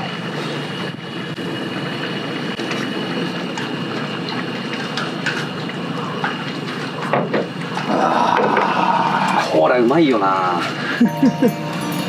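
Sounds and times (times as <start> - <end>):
gas stove burner hissing: 0.0 - 7.8.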